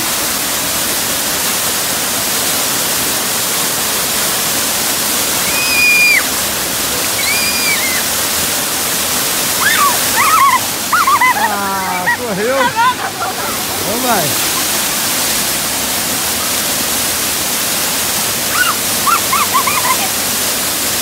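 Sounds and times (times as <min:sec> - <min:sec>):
waterfall pouring into pool: 0:00.0 - 0:21.0
child squealing: 0:05.4 - 0:06.3, 0:07.0 - 0:08.1, 0:09.6 - 0:13.6, 0:18.5 - 0:20.2.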